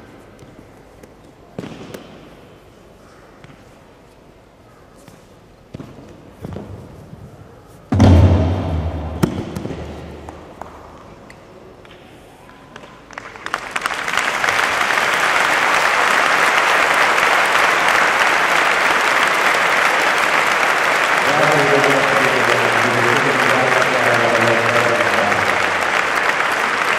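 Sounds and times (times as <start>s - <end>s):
heavy low thump: 8.0s - 10.4s
audience applause: 13.1s - 26.9s.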